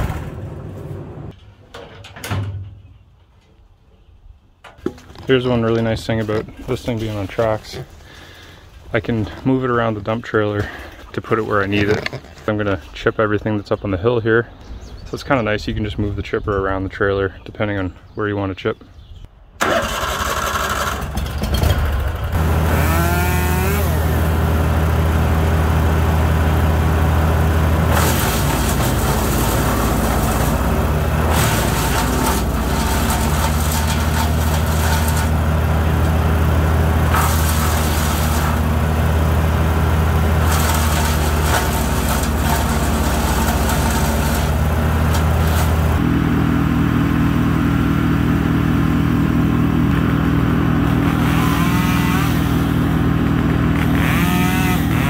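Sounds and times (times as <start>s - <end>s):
wood being shredded: 4.9s - 12.5s, 19.6s - 55.0s
wood chipper engine running: 5.2s - 9.8s, 10.6s - 12.1s, 19.6s - 55.0s.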